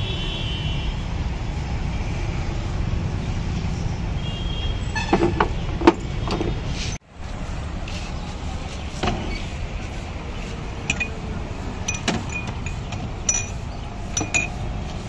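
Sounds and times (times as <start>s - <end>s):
drinking glasses clinking: 10.9s - 11.2s, 11.8s - 14.6s.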